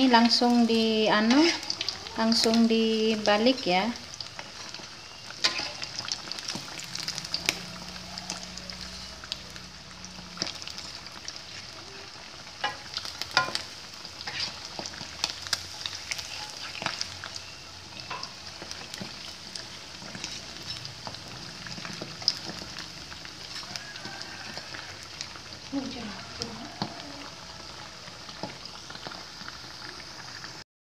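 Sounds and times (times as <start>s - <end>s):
food sizzling in hot oil: 0.0s - 30.6s
spatula scraping a wok: 1.1s - 3.3s, 4.3s - 9.4s, 12.6s - 25.3s.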